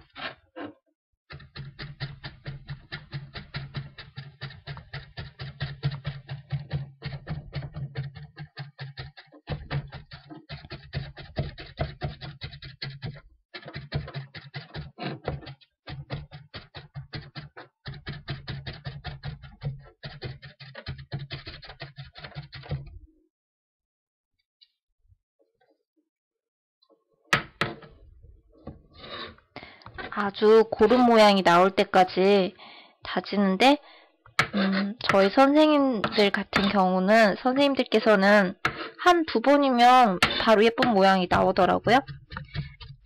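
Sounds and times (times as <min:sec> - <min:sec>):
cutting board thudding: 0:27.4 - 0:27.9.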